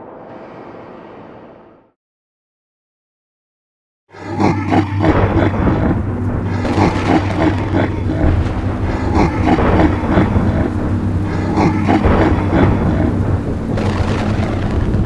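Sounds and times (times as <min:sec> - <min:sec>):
cartoon truck engine growling: 0:04.2 - 0:15.0.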